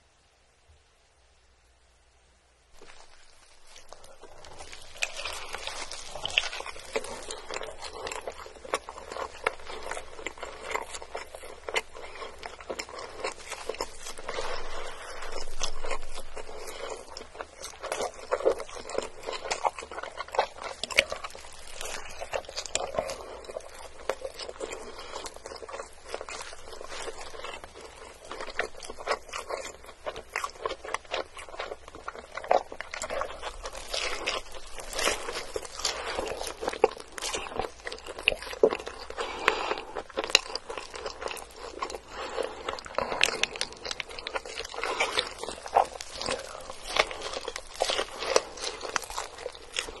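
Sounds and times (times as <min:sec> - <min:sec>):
chewing and biting burger: 0:02.8 - 0:50.0.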